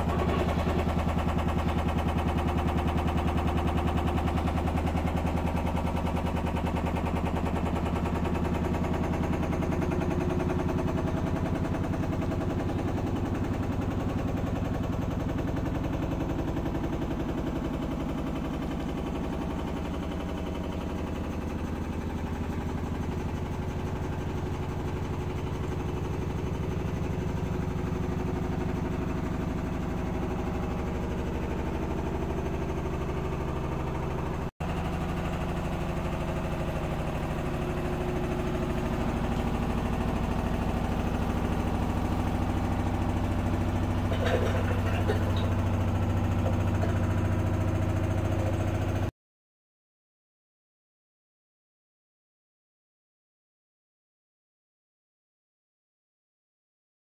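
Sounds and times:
washing machine drum spinning: 0.0s - 49.1s.

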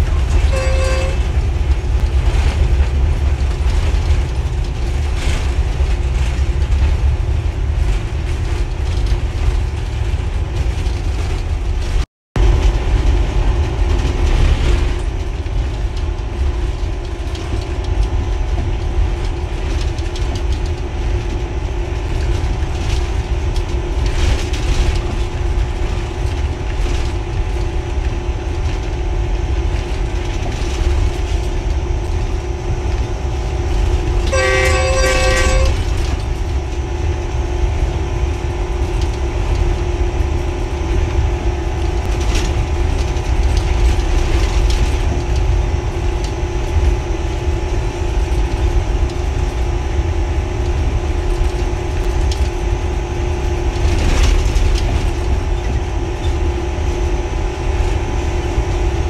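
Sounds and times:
locomotive engine rumble: 0.0s - 59.0s
steady hum: 0.0s - 59.0s.

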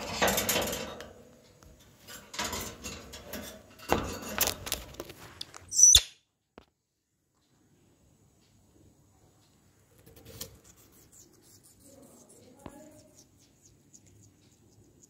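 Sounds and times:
wire birdcage rattling: 0.0s - 1.2s, 2.0s - 5.0s
sharp sound with high squeak: 5.7s - 6.2s.

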